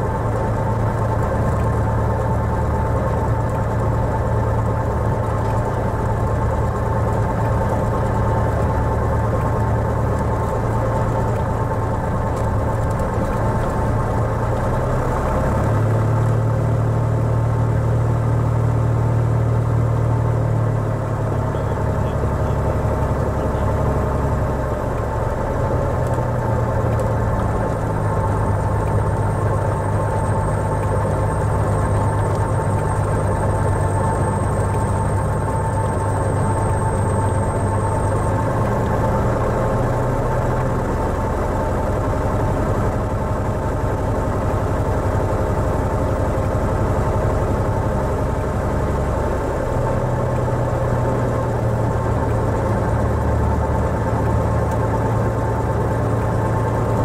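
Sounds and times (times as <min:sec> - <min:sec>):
aircraft piston engine droning: 0:20.7 - 0:57.0.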